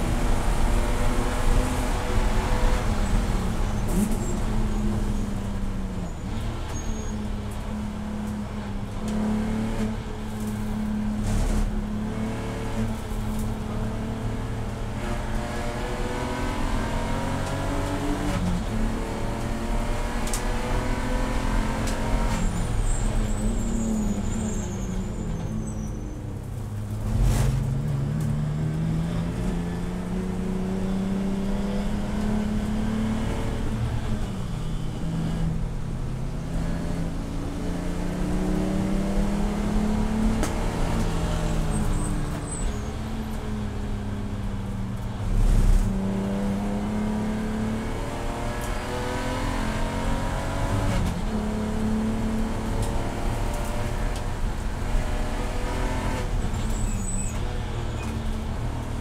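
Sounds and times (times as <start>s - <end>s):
race car engine accelerating: 36.4s - 43.4s.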